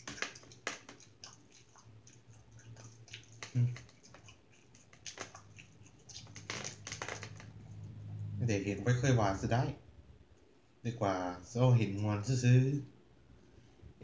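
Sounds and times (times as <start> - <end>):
person chewing: 0.0 - 7.4
wet mouth clicks: 0.0 - 7.6.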